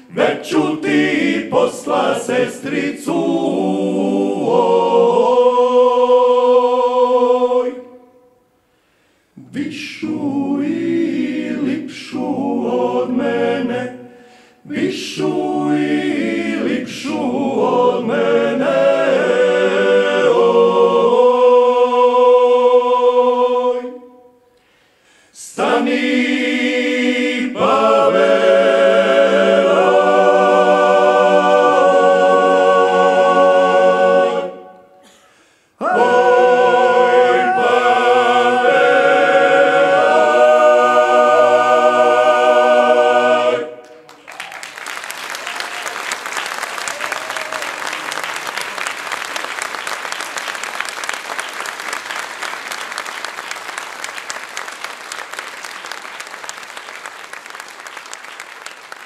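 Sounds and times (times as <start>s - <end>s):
male choir singing unaccompanied: 0.0s - 8.0s, 9.4s - 24.2s, 25.4s - 34.8s, 35.8s - 44.1s
audience applause: 43.8s - 59.0s.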